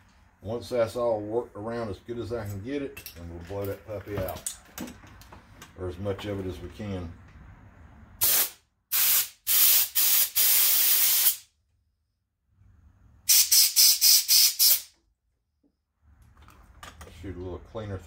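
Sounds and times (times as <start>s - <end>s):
compressed air blasts hissing: 8.2s - 11.5s, 13.3s - 14.9s.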